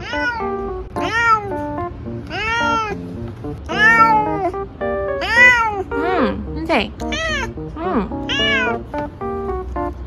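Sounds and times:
cat meowing: 0:00.0 - 0:03.0, 0:03.7 - 0:06.1, 0:07.0 - 0:08.8
background music: 0:00.3 - 0:10.0.

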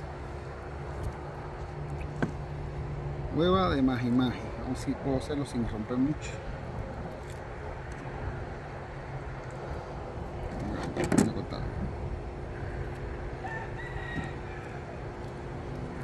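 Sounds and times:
steady background hum: 0:00.0 - 0:16.0
rooster crowing: 0:13.4 - 0:15.2.

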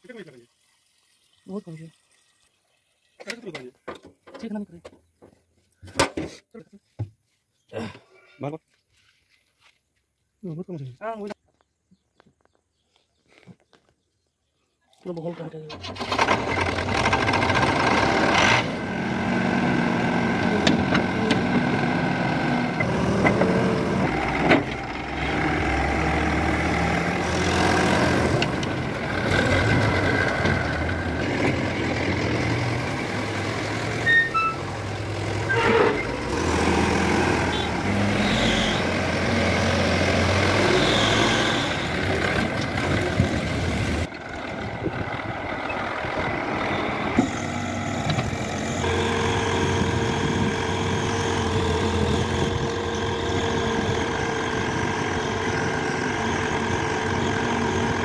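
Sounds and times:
diesel engine running: 0:15.8 - 0:58.0
heavy vehicle engines: 0:15.8 - 0:58.0
short high tones: 0:34.0 - 0:34.7.

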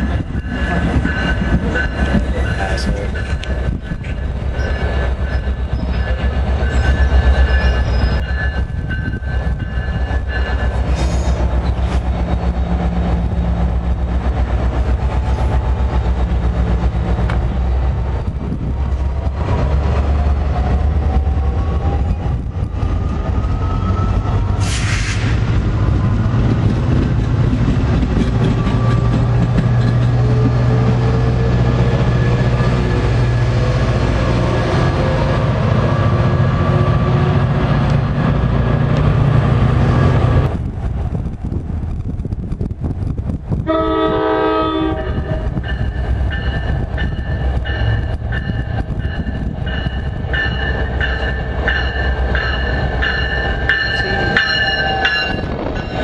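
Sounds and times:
train wheels rumbling on rail: 0:00.0 - 0:56.0
short hiss: 0:24.7 - 0:25.4.

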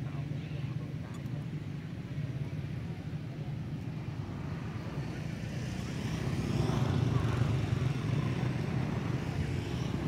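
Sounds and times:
passing vehicle engine rumble: 0:03.4 - 0:10.0.

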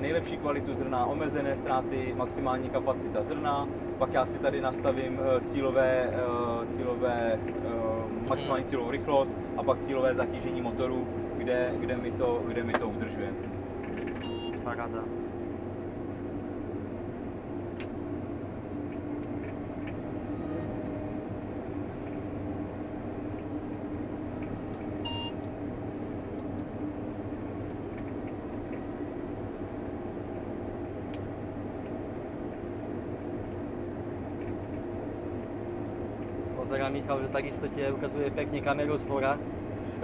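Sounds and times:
combine harvester drone: 0:00.0 - 0:40.0
short electronic beep: 0:14.2 - 0:14.6.

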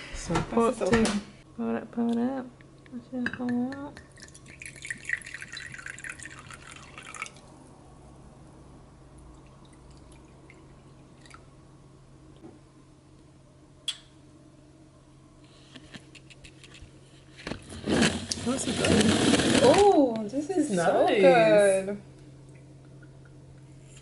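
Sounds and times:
faint steady hum: 0:00.0 - 0:24.0
liquid pouring into a cup: 0:04.0 - 0:07.6, 0:09.2 - 0:11.5.

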